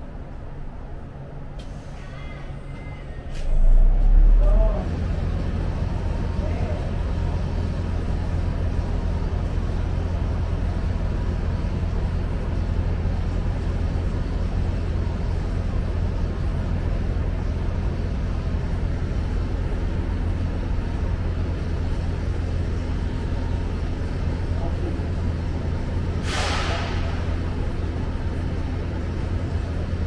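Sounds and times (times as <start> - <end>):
subway train rumbling: 0.0 - 30.0.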